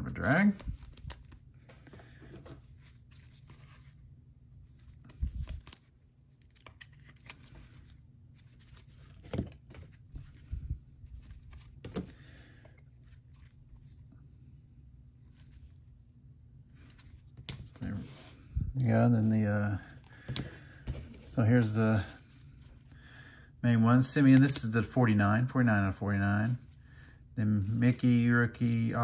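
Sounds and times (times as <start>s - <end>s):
cards rustling and sliding: 0.1s - 14.2s, 15.2s - 15.9s, 16.6s - 23.0s, 24.2s - 24.8s
cards tapping down: 20.1s - 21.2s.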